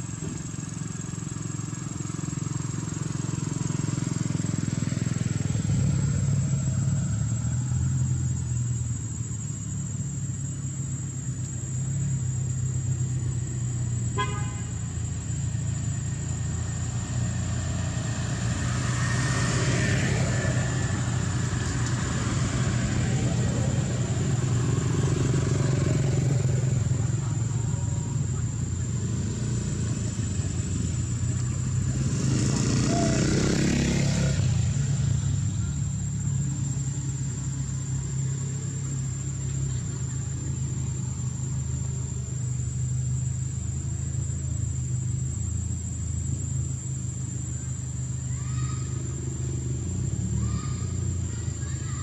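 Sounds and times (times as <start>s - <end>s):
traffic rumble: 0.0s - 52.0s
vehicle passing: 0.0s - 52.0s
vehicle horn toot: 14.1s - 14.9s.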